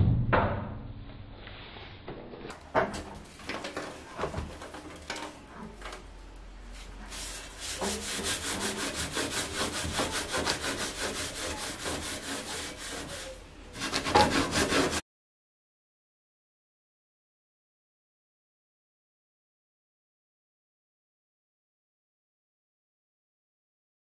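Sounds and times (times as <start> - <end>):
sponge scrubbing stovetop: 6.8 - 15.0.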